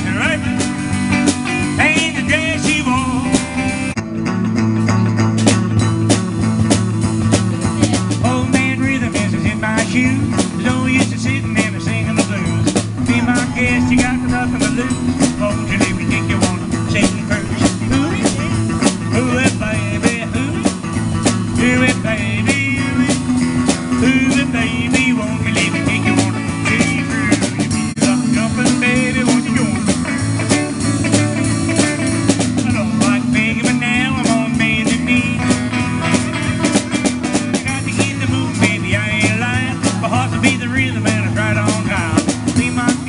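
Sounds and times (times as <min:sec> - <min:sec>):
drum kit beat: 0:00.0 - 0:43.0
electric guitar lead with bent notes: 0:00.0 - 0:43.0.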